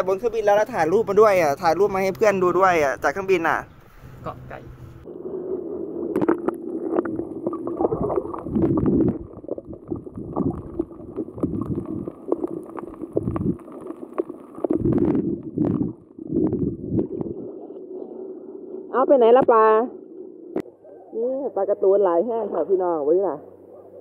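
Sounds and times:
underwater splashing and bubbling: 0:05.0 - 0:20.8.

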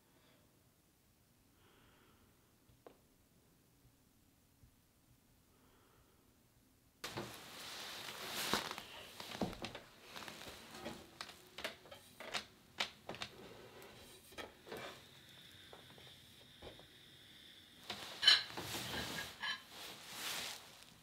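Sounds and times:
steady room tone hiss: 0:00.0 - 0:21.0
rustling: 0:07.0 - 0:15.0, 0:17.8 - 0:21.0
small clicks and taps: 0:11.3 - 0:13.3.

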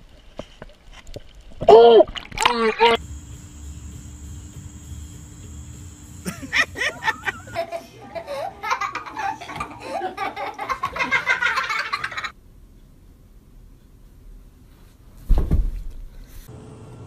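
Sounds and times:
loud laughter: 0:06.2 - 0:12.3.

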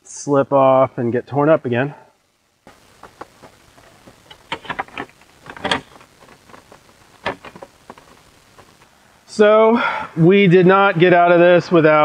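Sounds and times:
low hiss: 0:00.0 - 0:12.0
faint clicks and taps: 0:02.7 - 0:08.9.

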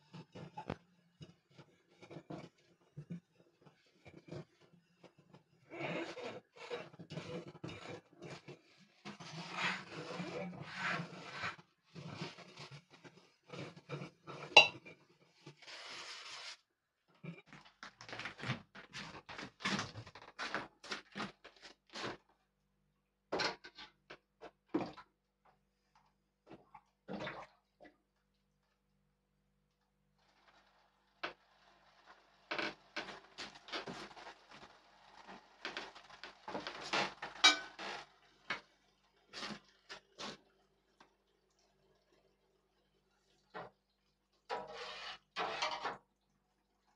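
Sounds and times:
pots and utensils clattering: 0:14.3 - 0:15.0, 0:35.2 - 0:38.6.

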